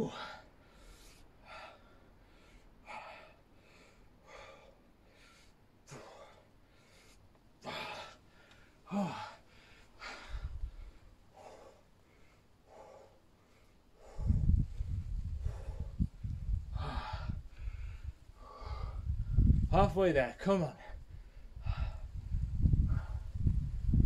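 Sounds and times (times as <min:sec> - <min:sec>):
man breathing hard: 0:00.1 - 0:19.7, 0:20.8 - 0:23.9
low grunt: 0:08.9 - 0:09.3
low rumble: 0:14.0 - 0:19.8, 0:21.0 - 0:24.0.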